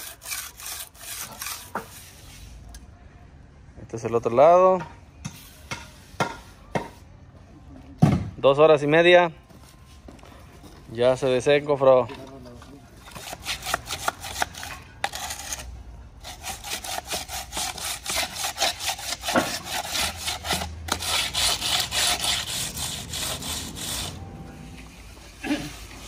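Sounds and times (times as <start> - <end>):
float scraping concrete: 0.0 - 2.7, 13.1 - 26.0.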